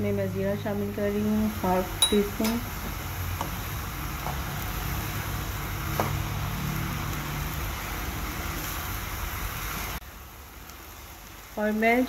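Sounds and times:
onions sizzling in oil: 0.0s - 12.0s
spoon knocking on pan: 2.0s - 2.6s.

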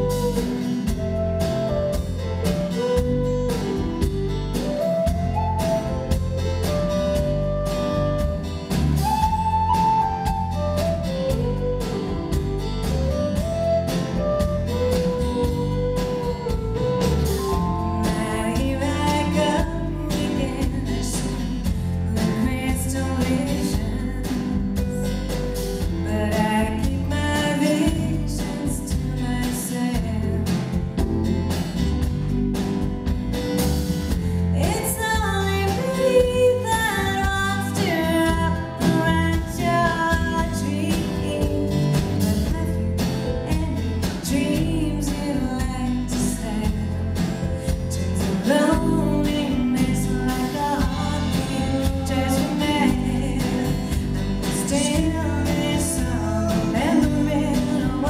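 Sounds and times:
live band playing: 0.0s - 58.0s
woman singing: 17.5s - 31.1s, 34.1s - 58.0s.

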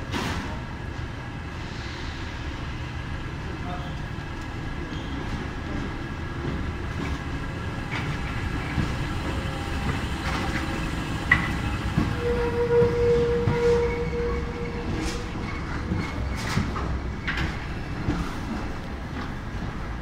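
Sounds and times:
metro train rumbling: 0.0s - 20.0s
wheels clicking on rail: 5.2s - 20.0s.

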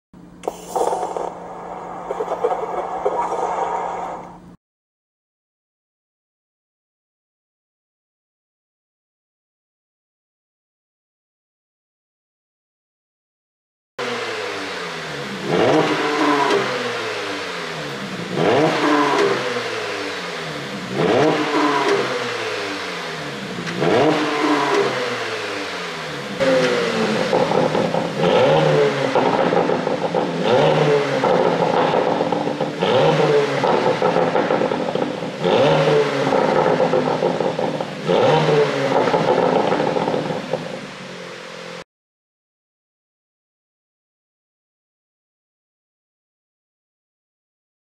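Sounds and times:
car engine revving: 14.0s - 41.8s
exhaust pops and crackles: 26.4s - 40.8s.

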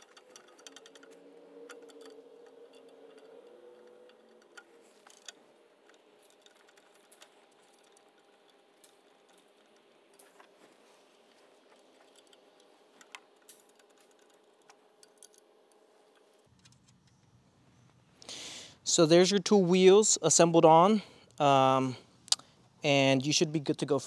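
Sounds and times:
screws clicking in metal bracket: 0.0s - 10.4s.

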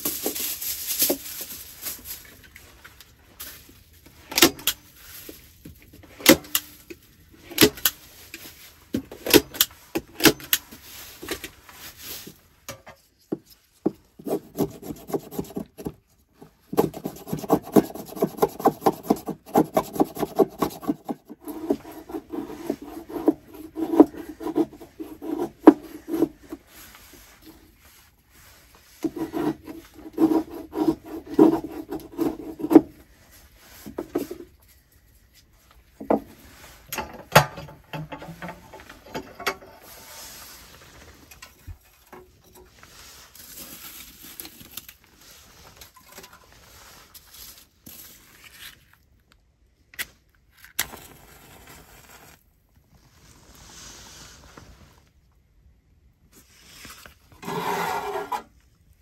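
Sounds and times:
knife scraping dry wood: 14.2s - 26.9s, 29.0s - 32.9s, 57.4s - 58.5s.

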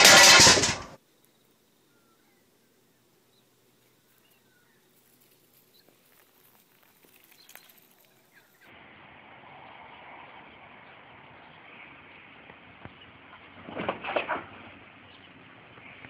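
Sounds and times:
cat paws pattering on pine needles: 3.8s - 8.6s.

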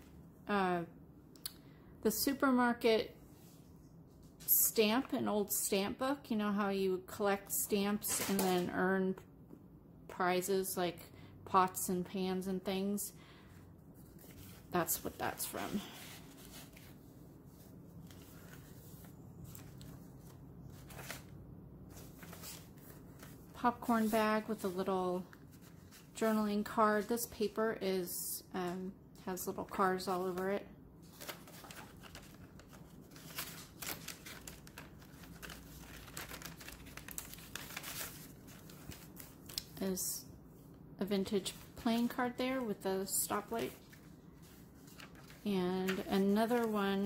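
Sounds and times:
low steady hum: 0.0s - 47.0s
paper pages rustling: 14.0s - 26.3s, 29.6s - 39.8s, 43.3s - 47.0s.

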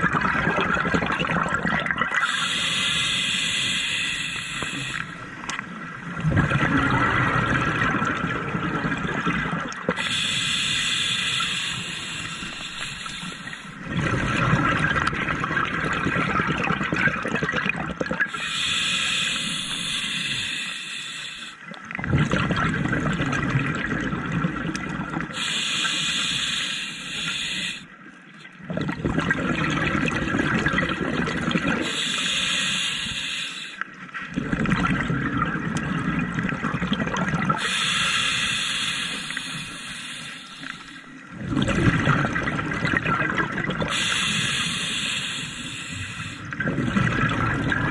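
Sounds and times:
exhaled bubbles rushing: 0.0s - 2.4s, 6.0s - 10.0s, 13.4s - 18.4s, 21.7s - 25.4s, 28.6s - 31.9s, 34.3s - 37.6s, 41.2s - 44.0s, 46.4s - 47.9s
regulator hissing inhalations: 2.2s - 5.1s, 10.0s - 13.8s, 18.3s - 21.6s, 25.4s - 27.9s, 31.8s - 33.8s, 37.6s - 41.0s, 43.9s - 46.5s.

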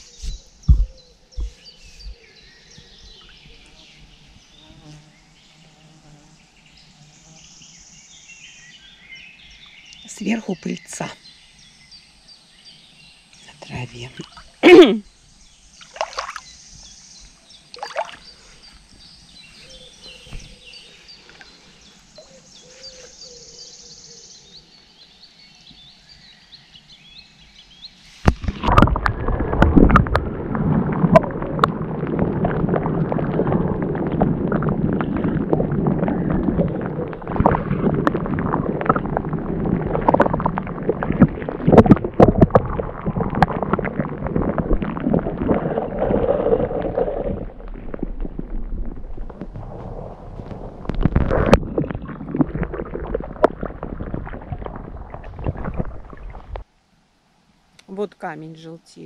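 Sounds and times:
water sloshing and splashing: 15.8s - 19.0s, 28.2s - 56.7s.

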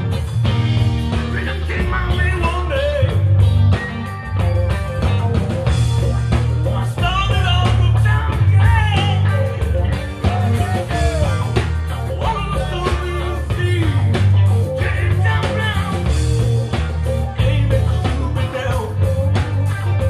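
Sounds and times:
drums: 0.0s - 20.0s
electric guitars: 0.0s - 20.0s
man singing into a microphone: 1.3s - 3.3s, 6.8s - 19.4s.

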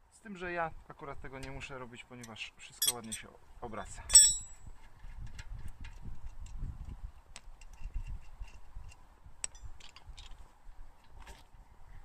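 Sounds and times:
sharp metal clink: 2.8s - 3.2s, 4.1s - 4.6s.

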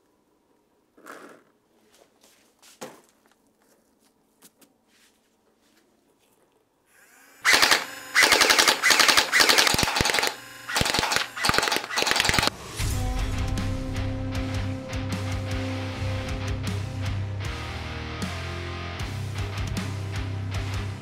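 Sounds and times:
automatic gunfire bursts: 7.4s - 12.5s.

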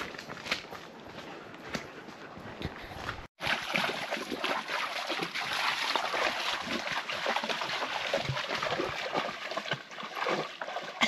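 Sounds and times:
water splashing and trickling: 3.3s - 11.0s.

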